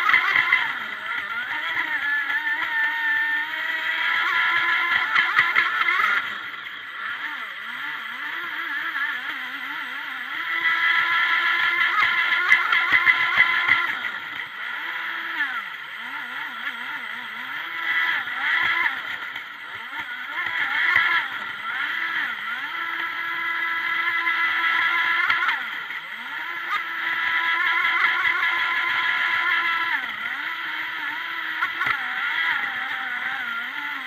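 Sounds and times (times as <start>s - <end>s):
electric motor whining: 0.0s - 34.0s.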